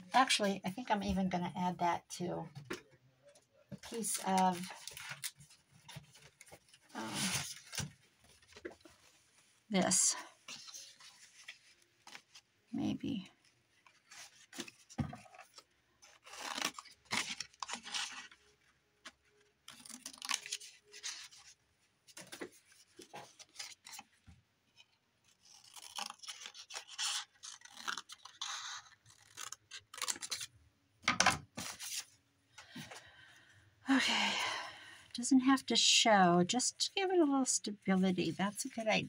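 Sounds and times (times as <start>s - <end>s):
paper and card rustling: 3.7s - 30.5s, 31.4s - 33.1s, 36.5s - 39.0s.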